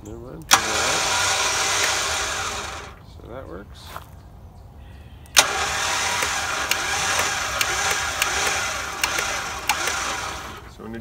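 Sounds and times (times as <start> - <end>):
electric winch running: 0.5 - 3.0, 5.4 - 10.8.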